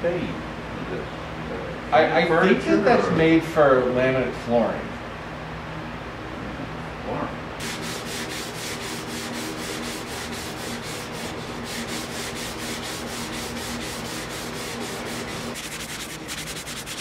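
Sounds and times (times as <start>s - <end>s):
steady low hum: 0.0s - 17.0s
sanding block on wood: 7.6s - 17.0s.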